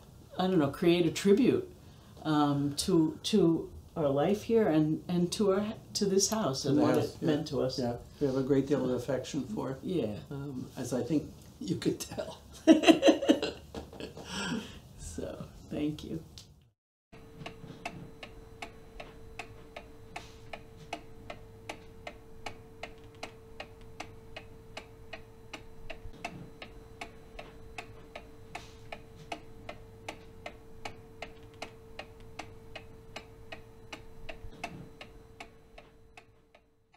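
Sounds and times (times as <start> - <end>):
faint steady hum: 0.0 - 16.6, 17.2 - 36.9
clock ticking: 17.2 - 36.7.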